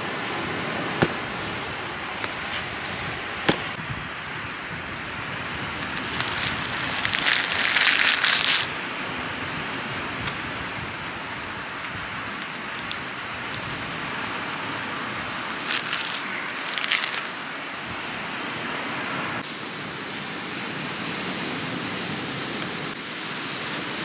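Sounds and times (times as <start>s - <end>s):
steady hiss: 0.0s - 24.0s
fibres tearing with crackling rustle: 5.8s - 8.7s, 10.2s - 13.7s, 15.4s - 17.3s.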